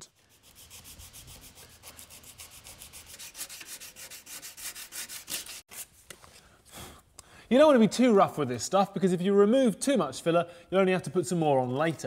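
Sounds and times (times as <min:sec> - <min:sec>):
sandpaper scraping: 0:00.0 - 0:06.2.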